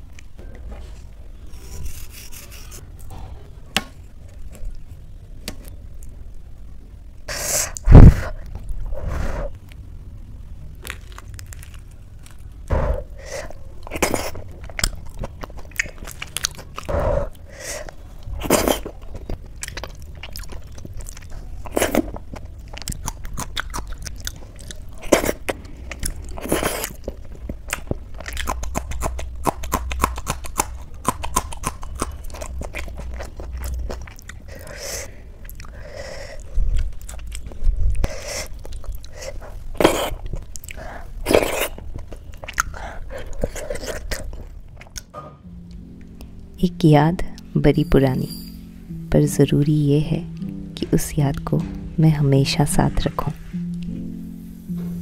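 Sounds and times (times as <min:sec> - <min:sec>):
crunchy chilli bites: 0:10.8 - 0:12.7, 0:13.8 - 0:34.7
chewing and lip smacks: 0:13.8 - 0:35.8, 0:36.4 - 0:45.1.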